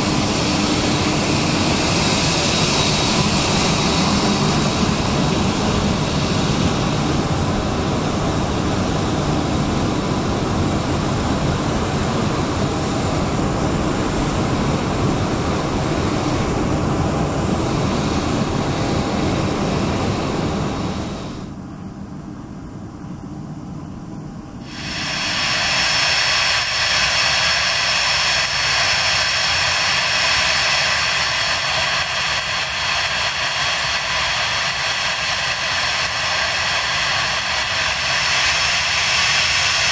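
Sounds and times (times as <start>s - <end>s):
jet engines whining: 0.0s - 22.8s, 23.9s - 39.9s.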